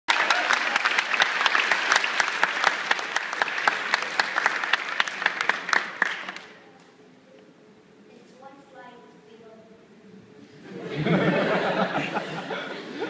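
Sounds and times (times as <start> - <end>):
audience applauding: 0.1 - 6.6.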